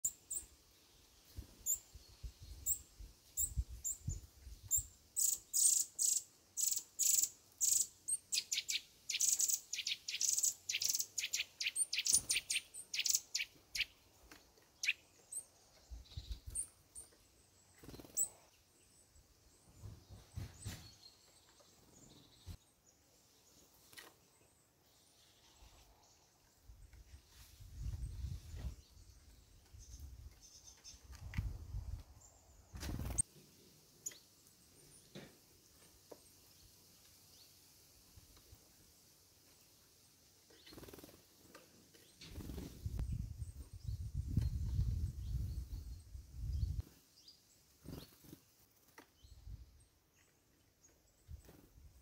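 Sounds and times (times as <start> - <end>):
songbirds chirping: 0.0 - 52.0.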